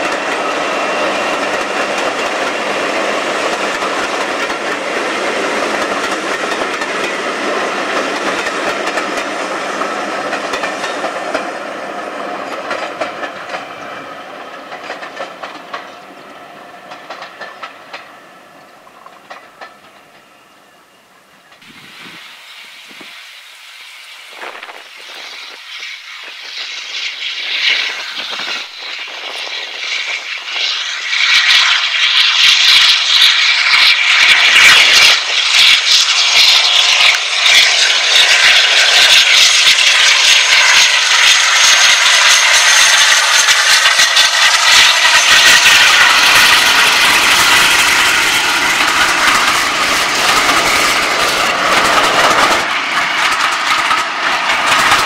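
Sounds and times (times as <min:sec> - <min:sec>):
diesel locomotive passing: 0:00.0 - 0:55.0.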